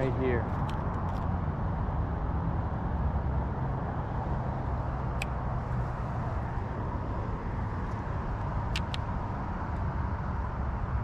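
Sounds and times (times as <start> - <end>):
quick clicks: 8.7 - 9.1.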